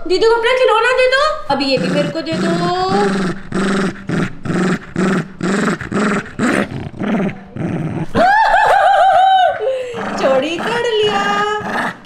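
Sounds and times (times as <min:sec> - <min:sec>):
small dog growling: 0:01.5 - 0:08.3, 0:09.6 - 0:12.0.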